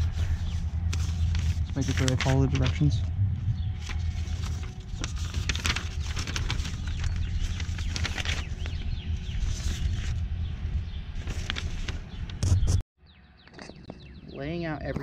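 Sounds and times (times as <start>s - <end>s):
paper rustling and crackling: 0.0s - 3.1s, 3.7s - 10.3s, 11.2s - 12.7s
low rumble: 0.0s - 12.4s
faint birds chirping: 0.0s - 15.0s.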